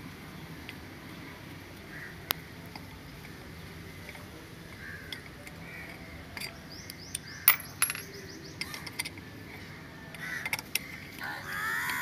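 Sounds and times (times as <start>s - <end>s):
box spanner clinking on bolts: 7.5s - 9.2s.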